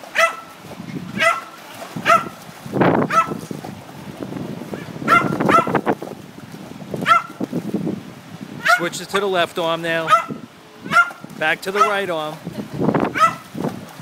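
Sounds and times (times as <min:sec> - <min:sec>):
water splashing: 0:00.0 - 0:14.0
small dog yapping: 0:00.2 - 0:00.4, 0:01.2 - 0:02.4, 0:03.1 - 0:03.4, 0:05.1 - 0:05.8, 0:07.0 - 0:07.3, 0:08.6 - 0:08.8, 0:10.1 - 0:11.2, 0:13.1 - 0:13.4.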